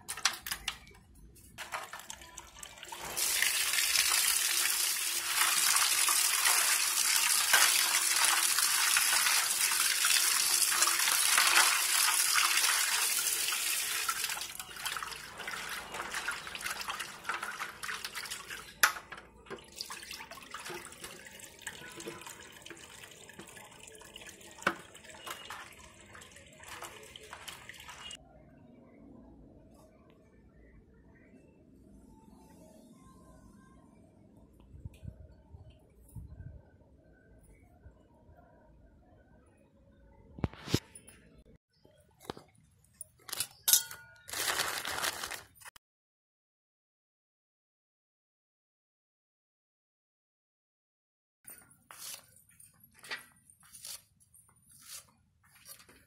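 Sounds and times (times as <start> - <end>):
water pouring and splashing: 1.6 - 28.2.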